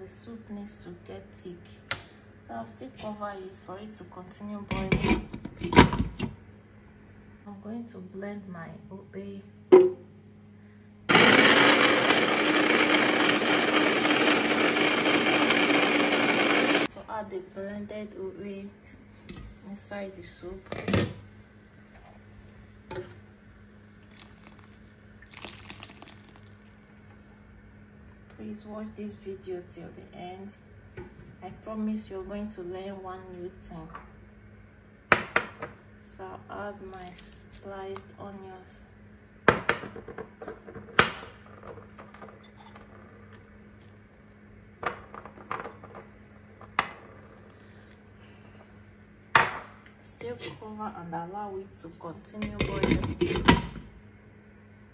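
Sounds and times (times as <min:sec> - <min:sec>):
faint steady hum: 0:00.0 - 0:14.6, 0:15.4 - 0:54.9
soup simmering: 0:21.3 - 0:27.2.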